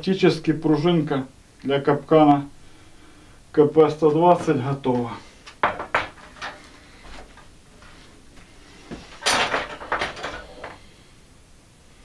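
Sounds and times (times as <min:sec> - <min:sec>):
metallic clanks and rattles: 0:05.5 - 0:07.5, 0:08.9 - 0:10.8.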